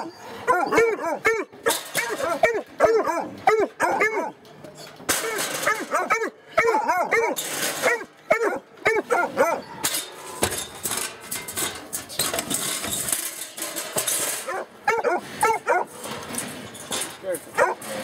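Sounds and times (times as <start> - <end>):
puppy yipping: 0.0 - 4.9, 5.6 - 9.9, 14.5 - 15.9, 17.6 - 17.8
scraping and rattling clatter: 0.4 - 18.0.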